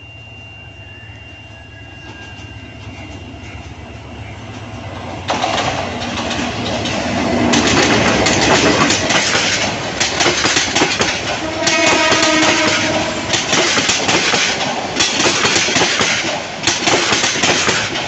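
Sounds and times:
diesel locomotive rumbling: 0.0 - 18.0
train wheels clattering over rail joints: 4.5 - 18.0.

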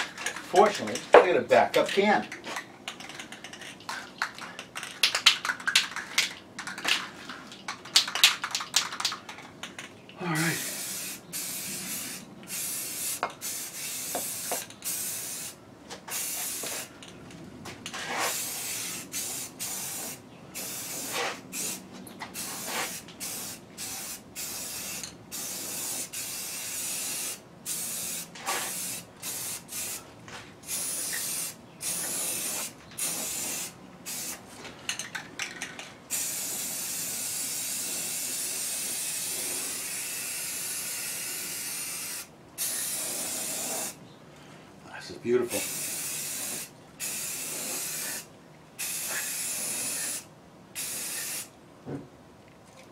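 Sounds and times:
spray paint can hissing: 7.9 - 16.9, 18.1 - 30.0, 30.6 - 34.4, 36.1 - 44.0, 45.5 - 51.5.

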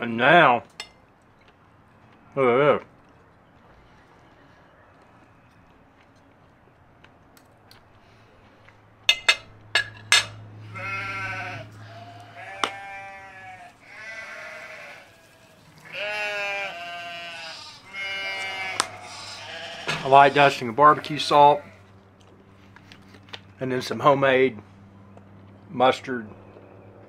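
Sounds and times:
animal bleating calls: 10.6 - 21.9.

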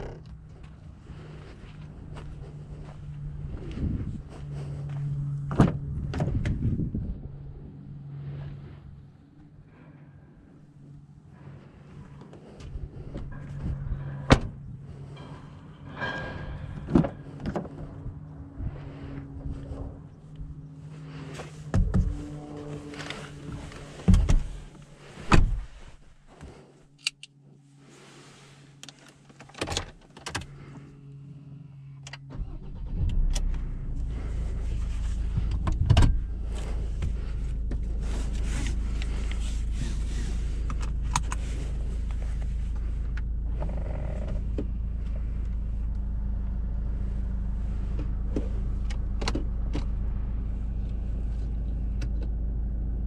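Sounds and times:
car engine starting and idling: 0.0 - 27.4, 28.0 - 53.0
car door shutting: 14.1 - 14.6, 21.7 - 25.8.

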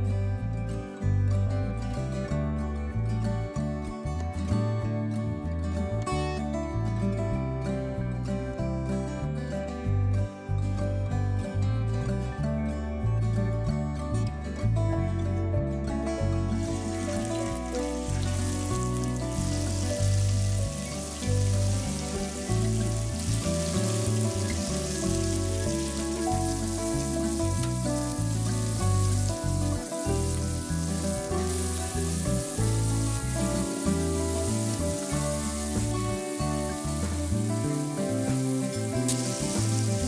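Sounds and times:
background music: 0.0 - 40.0
fish sizzling in hot oil: 16.5 - 40.0.

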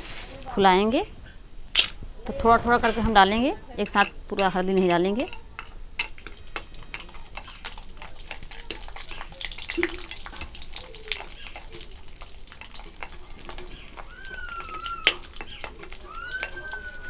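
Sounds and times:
steel ladle stirring: 2.3 - 17.0
spice pieces sizzling in hot oil: 5.2 - 17.0.

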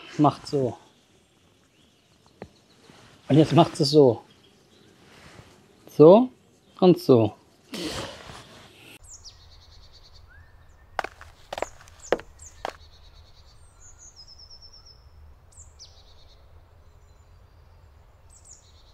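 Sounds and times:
songbirds chirping and trilling: 0.0 - 18.9
sharp footstep-like thuds: 11.0 - 12.8.

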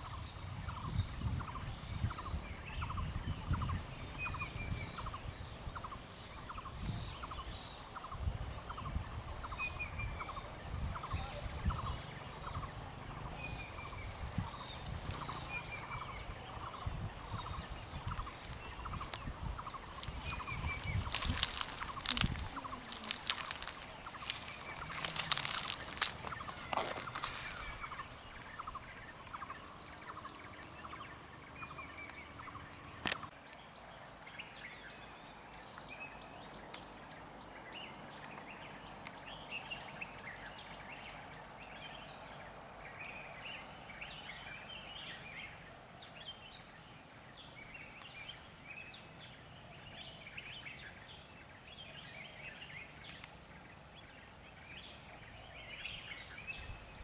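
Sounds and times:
loud bird calls: 0.0 - 33.3
faint bird chirps: 0.0 - 57.0
high insect drone: 0.0 - 57.0.

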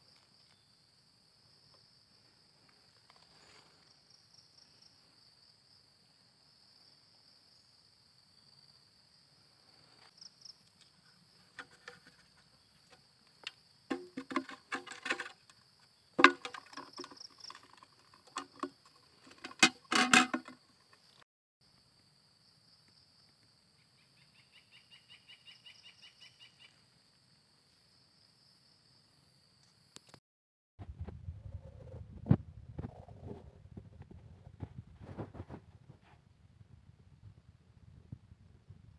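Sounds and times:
plastic box knocking and rattling: 13.9 - 15.5, 16.2 - 20.6.

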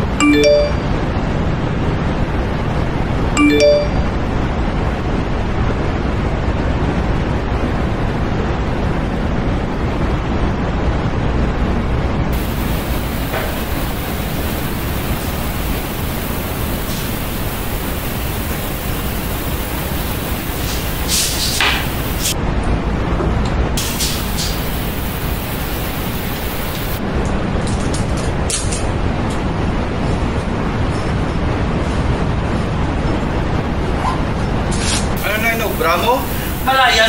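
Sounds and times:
static hiss: 12.3 - 22.4, 23.8 - 27.0, 35.0 - 37.0.

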